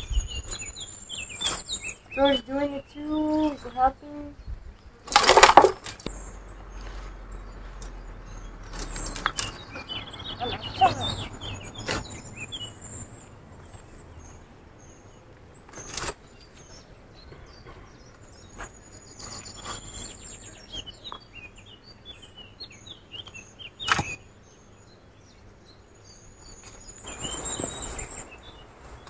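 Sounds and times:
small birds chirping: 0.0 - 29.0
rustling scrape: 6.7 - 7.9, 18.5 - 20.4, 26.6 - 29.0.

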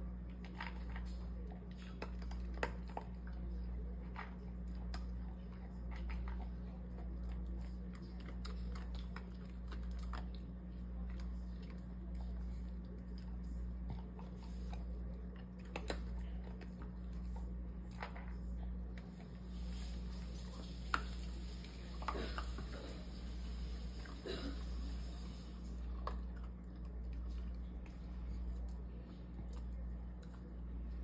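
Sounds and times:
dog crunching kibble: 0.0 - 23.3.

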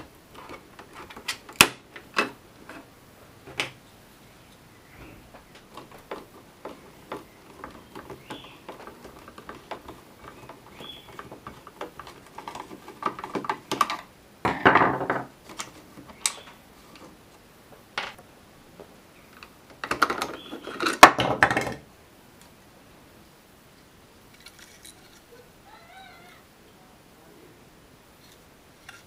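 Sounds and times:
plastic clattering: 0.0 - 2.9, 5.3 - 17.2, 19.4 - 21.8.

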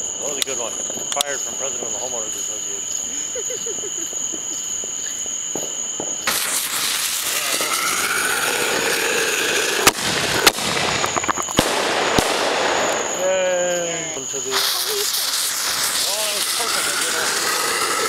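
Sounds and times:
fireworks sparks hissing: 0.0 - 18.0
fireworks bangs: 0.2 - 18.0
rising whistle: 7.1 - 9.9.

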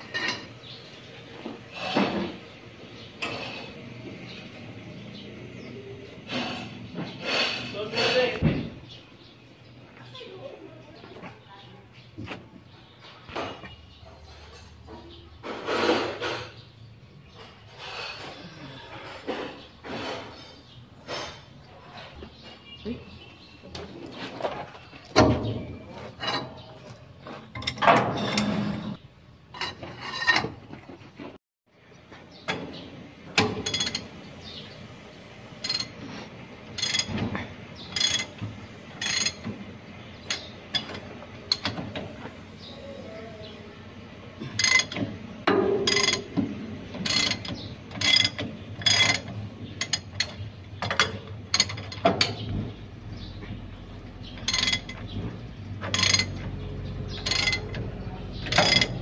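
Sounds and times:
ratchet wrench clicking: 35.6 - 35.9, 57.2 - 57.8.

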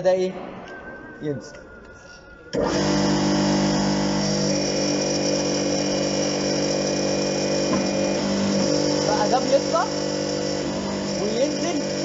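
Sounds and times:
electric motor and hydraulic pump humming: 2.5 - 12.0.

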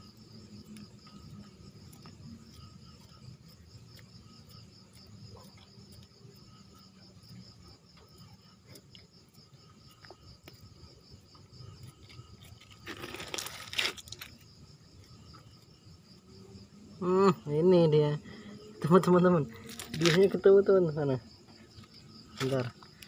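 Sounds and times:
insect trill: 0.0 - 23.0
scraping damp soil: 7.5 - 16.2.

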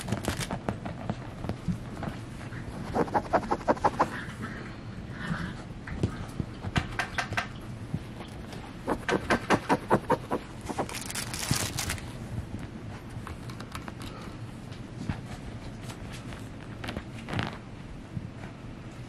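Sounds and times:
plush toy crinkling rustle: 0.0 - 2.4, 10.6 - 12.2.

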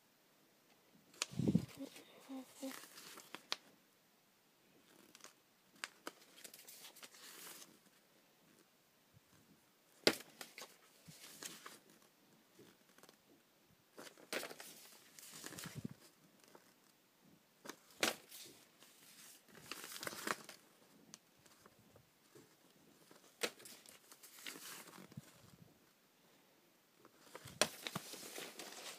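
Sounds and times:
magazine pages rustling: 1.1 - 3.6, 4.8 - 8.0, 10.0 - 13.2, 14.0 - 16.8, 17.6 - 25.5, 27.0 - 28.9
sharp paper crackle: 17.6 - 20.6, 23.0 - 25.4, 27.2 - 28.9.

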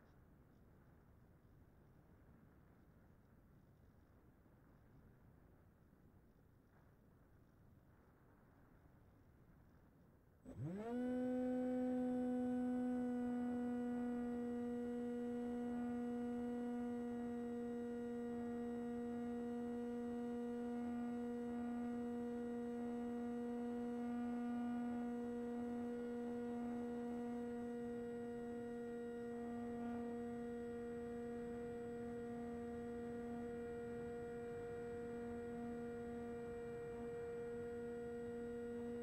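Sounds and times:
electric motor and propeller hum: 10.4 - 39.0.

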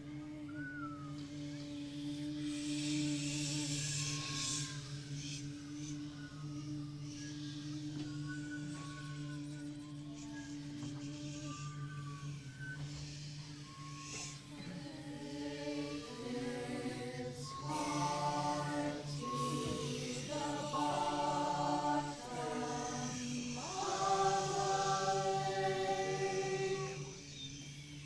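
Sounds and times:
low drone: 13.4 - 27.4
choir singing held chords: 13.6 - 28.0.

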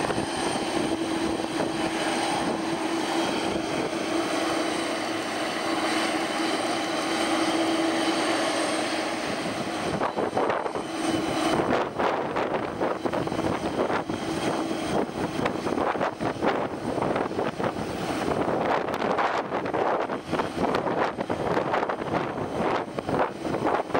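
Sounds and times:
jet engines whining: 0.0 - 23.9
wind buffeting microphone: 0.0 - 23.9.

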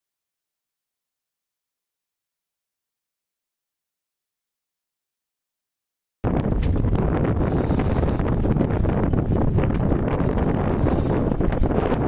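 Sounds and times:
wind buffeting microphone: 6.2 - 12.0.

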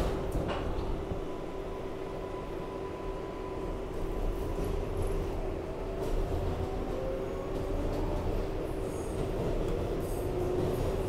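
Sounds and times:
train wheels rumbling on rails: 0.0 - 11.0.

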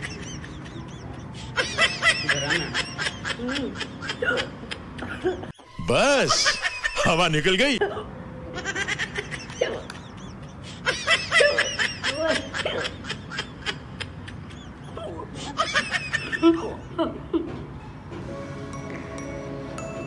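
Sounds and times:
man snickering laughter: 6.1 - 7.1
background music: 18.2 - 20.0.

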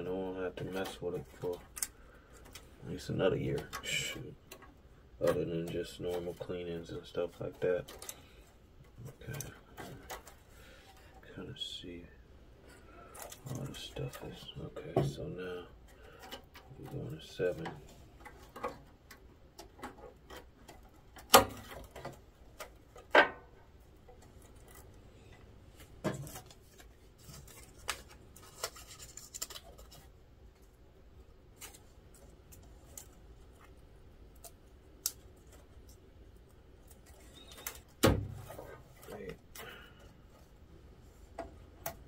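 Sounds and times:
rubbing and scratching of tape: 12.8 - 23.1, 24.0 - 42.0.

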